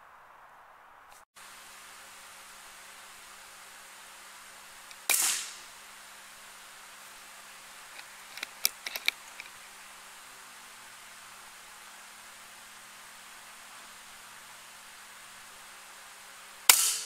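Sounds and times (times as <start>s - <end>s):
small sharp clicks: 4.9s - 5.6s, 7.9s - 9.6s
air rifle shot: 5.0s - 5.7s, 16.7s - 17.0s.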